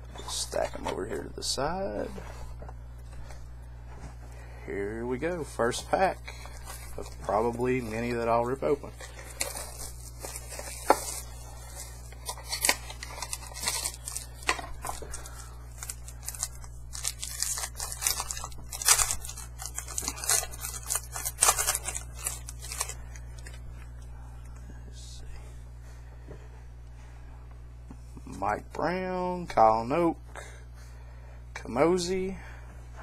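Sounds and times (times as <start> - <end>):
card pack tearing and crinkling: 6.3 - 23.6.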